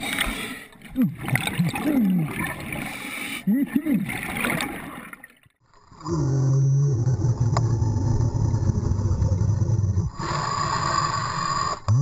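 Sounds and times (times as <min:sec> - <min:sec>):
hissing regulator inhale: 0:10.2 - 0:11.9.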